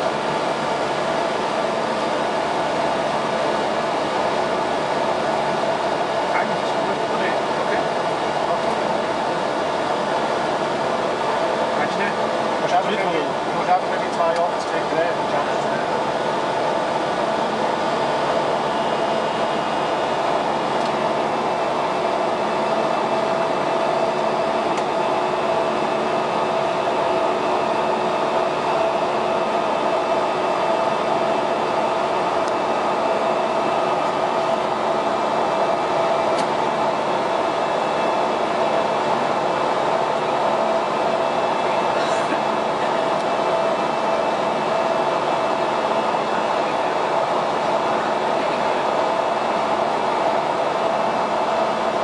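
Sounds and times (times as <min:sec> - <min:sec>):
constant engine hum: 0:00.0 - 0:52.0
aircraft cockpit air rush: 0:41.0 - 0:44.2.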